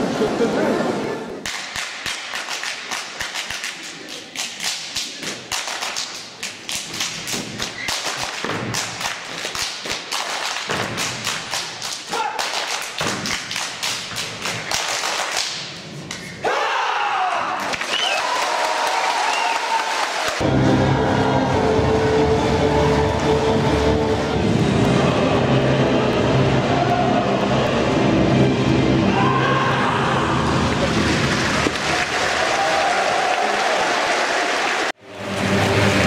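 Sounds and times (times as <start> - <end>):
loud music: 20.4 - 31.7, 35.0 - 36.0.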